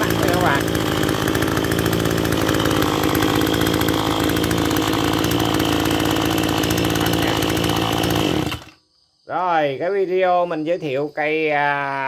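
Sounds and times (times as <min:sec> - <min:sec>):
brush cutter engine running: 0:00.0 - 0:08.8.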